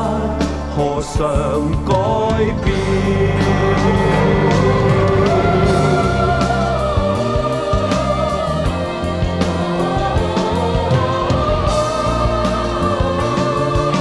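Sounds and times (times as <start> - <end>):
pop ballad: 0.0 - 14.0
steady drum beat: 1.7 - 9.4
bass line: 1.8 - 9.4.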